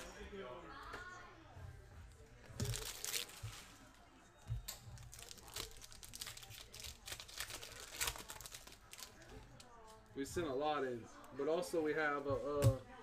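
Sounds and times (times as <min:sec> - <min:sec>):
foil wrapper crinkling and tearing: 0:02.6 - 0:03.7, 0:05.0 - 0:09.7.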